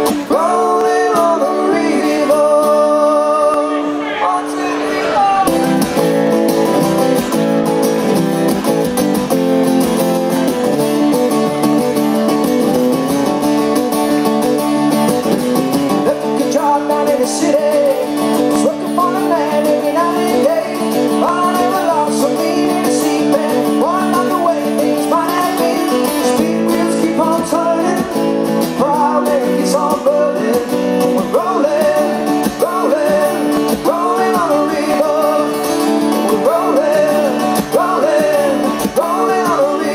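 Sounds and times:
man singing: 0.0 - 6.0, 15.9 - 39.9
acoustic guitars strummed: 0.0 - 39.9.

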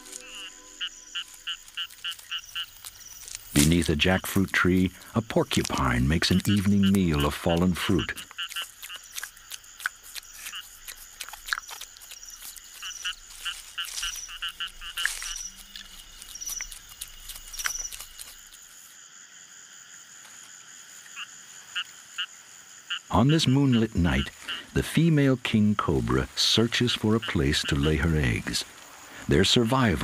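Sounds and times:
frogs chirping: 0.0 - 30.0
sharp clicks and crackles: 1.2 - 18.7.

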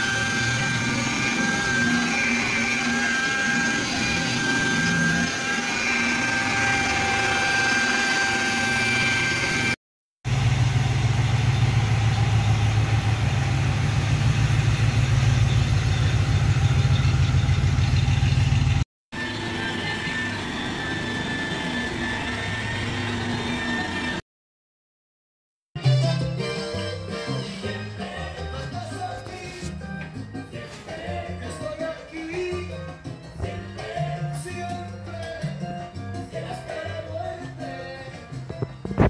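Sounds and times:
electric polisher whining: 0.0 - 24.2.

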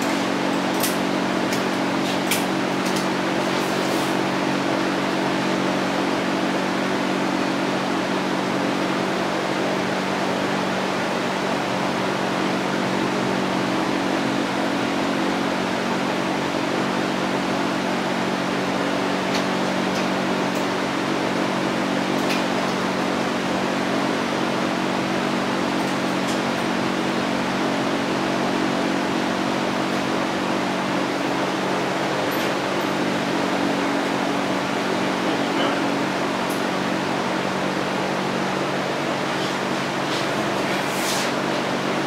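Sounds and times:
mechanical whir with air rush: 29.9 - 42.0.

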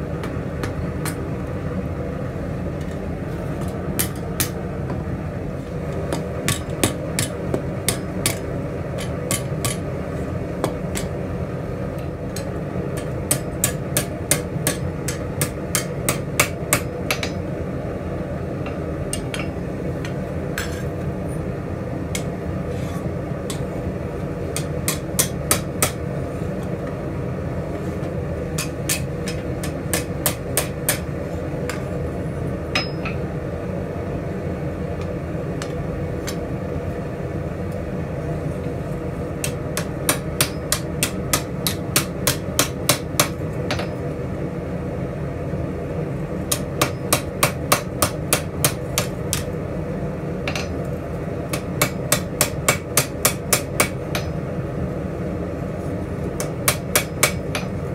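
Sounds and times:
hammer ringing on hot steel: 6.5 - 9.9, 12.3 - 17.5, 18.7 - 20.8, 24.5 - 26.0, 28.6 - 31.1, 32.7 - 33.2, 39.4 - 44.1, 46.5 - 49.5, 50.5 - 50.8, 51.5 - 54.4, 56.4 - 57.8.

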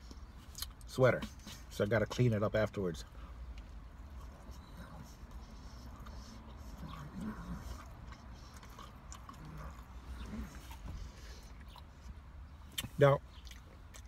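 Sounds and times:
person chewing: 3.5 - 14.0.

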